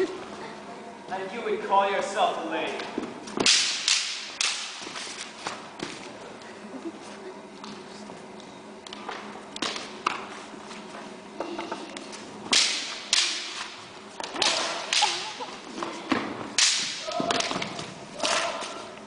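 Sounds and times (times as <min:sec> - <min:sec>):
canes striking each other: 0:02.8 - 0:06.0, 0:12.5 - 0:18.9.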